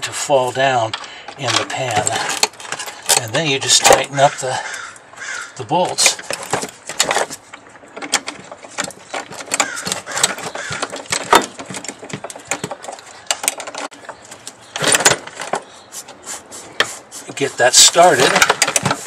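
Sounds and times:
rustling of gloved hands: 6.1s - 19.0s.

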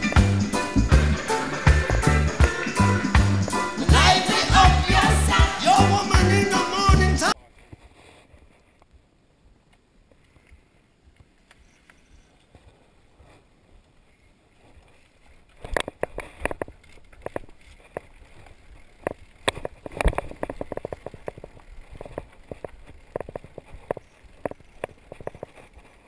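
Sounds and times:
mountain bike rattling over rocks: 14.6s - 26.0s.

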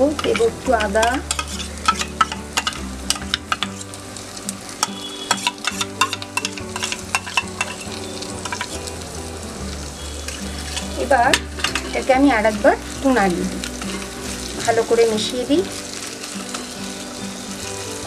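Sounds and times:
spoon tapping and scraping pan: 0.0s - 4.0s, 4.7s - 8.9s, 10.3s - 12.1s, 13.1s - 14.8s
vegetables sizzling in hot oil: 0.0s - 18.0s.

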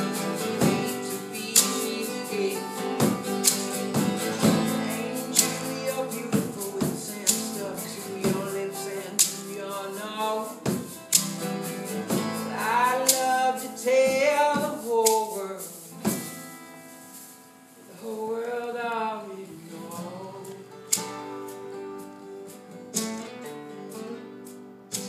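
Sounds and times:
sharp percussion hits: 0.0s - 8.6s, 10.6s - 15.2s
person singing: 0.0s - 11.3s, 12.1s - 16.3s, 17.8s - 21.0s
strummed acoustic guitars: 0.0s - 25.0s.

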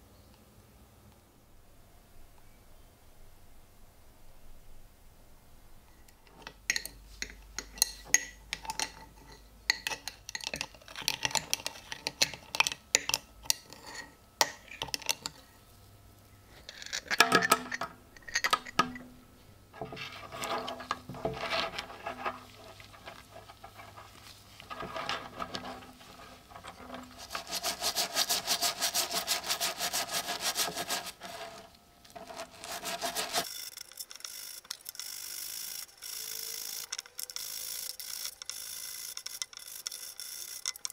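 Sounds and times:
brush scrubbing: 19.8s - 33.5s
coins clicking in a jar: 33.4s - 40.9s.

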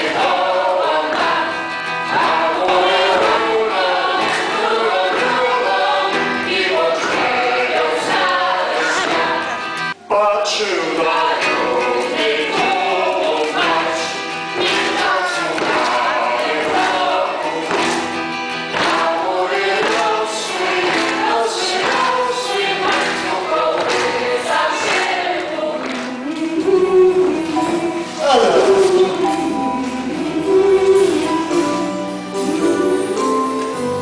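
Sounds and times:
children's choir singing: 0.0s - 34.0s
man singing: 10.0s - 14.0s, 26.2s - 31.7s.

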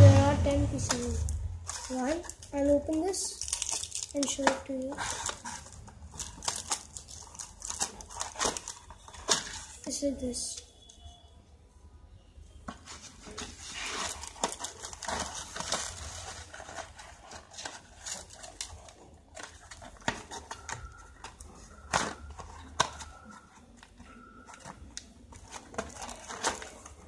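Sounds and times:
cardboard box rustling and scraping: 12.7s - 27.0s.

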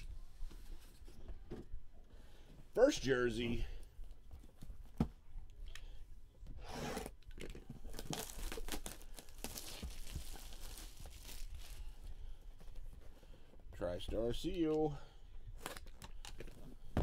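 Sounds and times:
plastic shrink-wrap crinkling: 7.2s - 12.0s.

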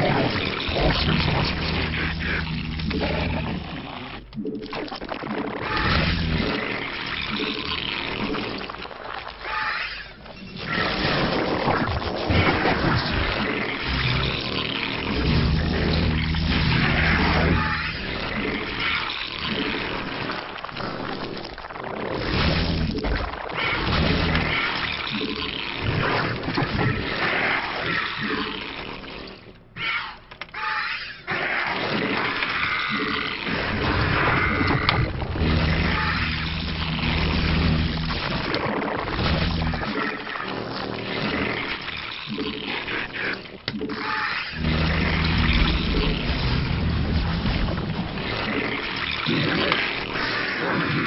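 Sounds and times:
creature growls: 0.0s - 4.3s, 5.1s - 51.0s.

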